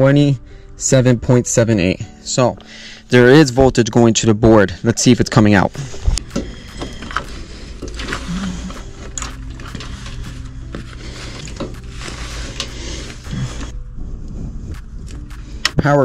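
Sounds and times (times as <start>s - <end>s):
steady low hum: 5.8s - 16.0s
light clicks and rustles of wiring: 6.1s - 10.5s.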